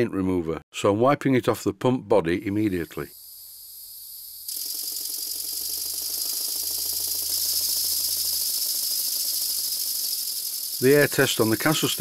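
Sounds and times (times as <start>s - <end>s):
model steam machinery running: 4.5s - 12.0s.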